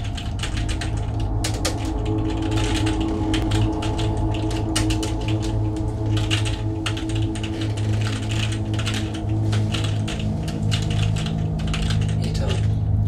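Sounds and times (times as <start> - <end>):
low sustained chord tones: 0.0 - 13.0
rapid irregular clicking: 0.0 - 13.0.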